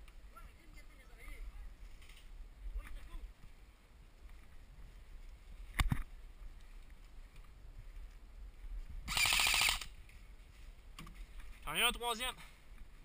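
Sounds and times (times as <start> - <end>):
airsoft gun full-auto burst: 9.1 - 9.9.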